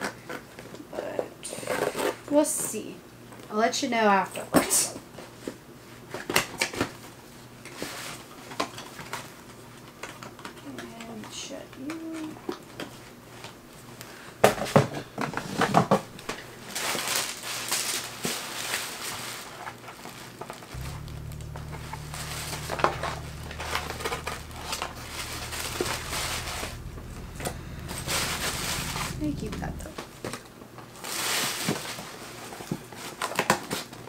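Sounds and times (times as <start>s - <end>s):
low steady hum: 16.0s - 16.8s, 20.8s - 30.3s.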